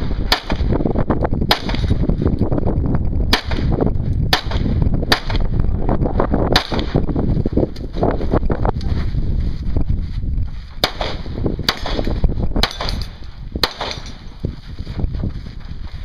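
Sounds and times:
handgun shots: 10.8 - 14.2.

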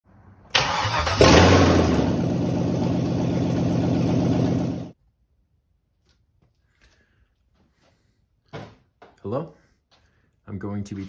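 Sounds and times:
car engine starting and running: 0.4 - 5.0.

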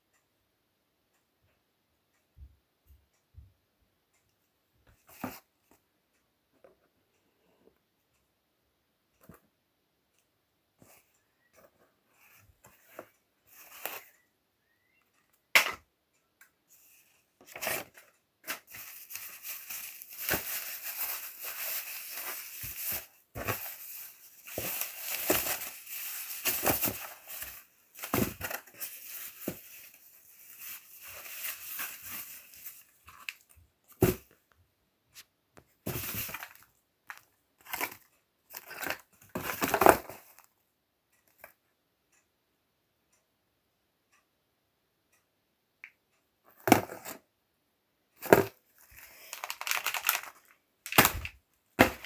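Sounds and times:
packaging rustling and crinkling: 17.5 - 34.2, 35.9 - 40.3, 48.2 - 52.0.

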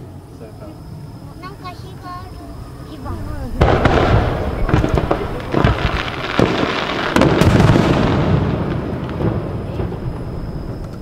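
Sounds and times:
rumbling echo: 1.7 - 11.0
fireworks launching and bursting: 3.0 - 11.0.

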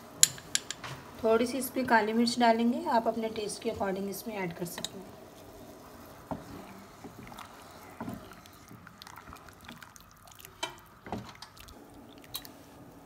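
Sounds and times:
soup sloshing: 4.8 - 12.8.

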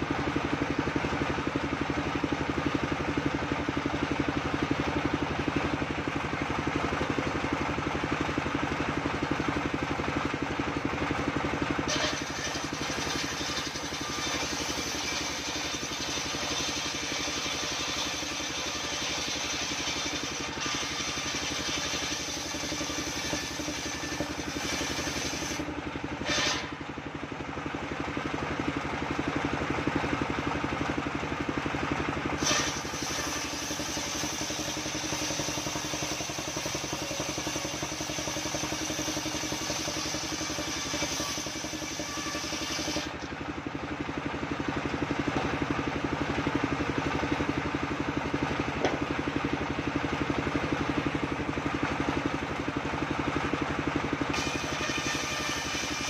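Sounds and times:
sawmill engine hum: 0.0 - 56.0
saw blade cutting log: 11.7 - 26.8, 32.4 - 43.4, 54.3 - 56.0.

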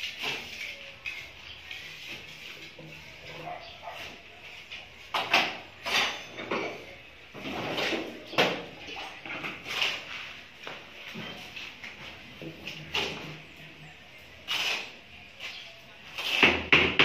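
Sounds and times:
shovel scraping concrete floor: 0.0 - 6.8, 7.4 - 13.3, 14.4 - 17.0.

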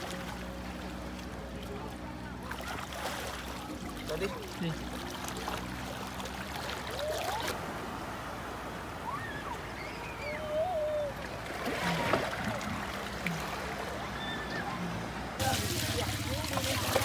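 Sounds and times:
water splashing and dripping: 15.4 - 17.0.

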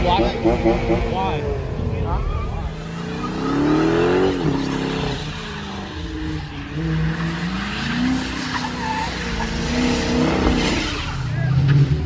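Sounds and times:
car engine revving: 0.0 - 12.0
tyres skidding on wet asphalt: 2.2 - 12.0.

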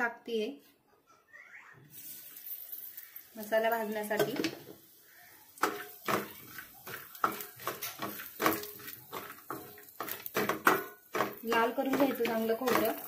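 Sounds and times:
wooden spatula scraping metal pan: 5.6 - 13.0.

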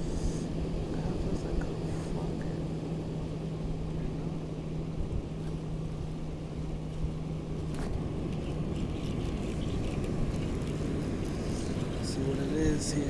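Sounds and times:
low motor hum: 0.0 - 13.0
wind: 0.0 - 13.0.

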